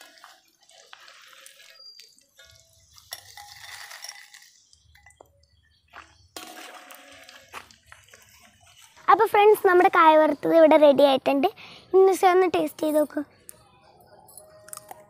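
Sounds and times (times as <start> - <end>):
metal and chips clinking: 0.0 - 5.4, 6.4 - 9.1.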